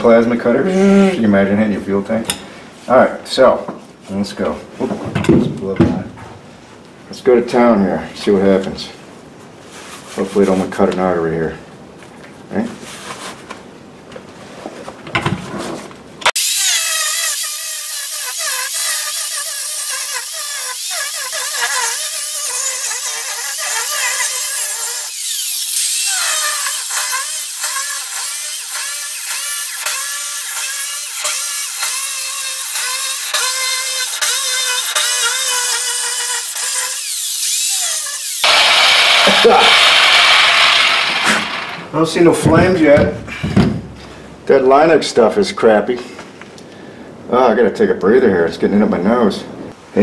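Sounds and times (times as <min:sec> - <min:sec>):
angle grinder cutting steel: 0:16.3 - 0:41.9.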